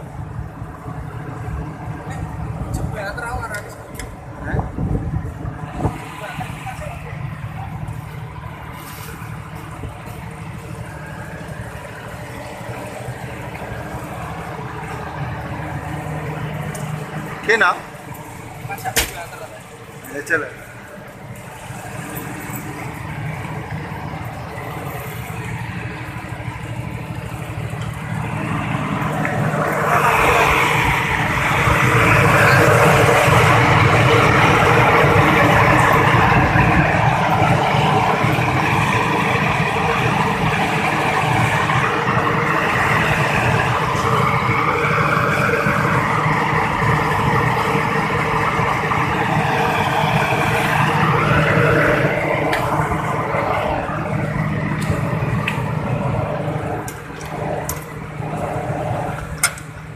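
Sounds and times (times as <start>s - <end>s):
diesel generator engine running: 0.0s - 59.9s.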